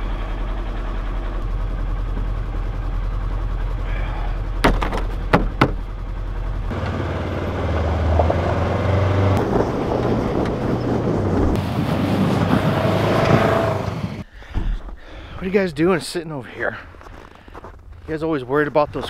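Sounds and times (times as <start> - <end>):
utility vehicle engine running: 0.0 - 14.2.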